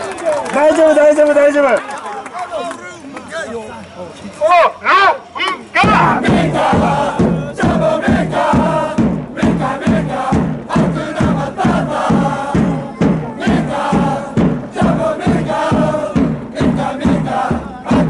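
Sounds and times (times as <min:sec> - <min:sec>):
crowd singing in unison: 0:05.8 - 0:18.0
heavy drum beat: 0:05.8 - 0:18.0.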